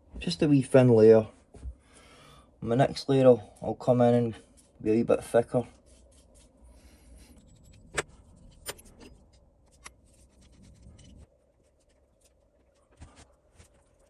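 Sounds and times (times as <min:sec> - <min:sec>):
paintbrush scratchy strokes: 0:05.6 - 0:07.7.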